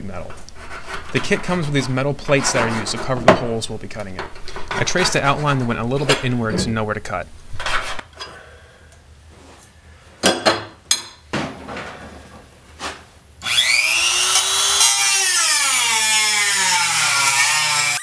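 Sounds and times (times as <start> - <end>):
rotary tool cutting sheet metal: 13.4 - 18.0.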